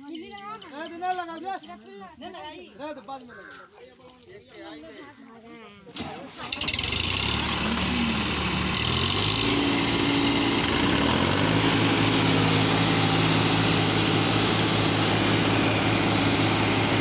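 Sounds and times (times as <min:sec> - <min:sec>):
tractor diesel engine running: 0:06.0 - 0:17.0.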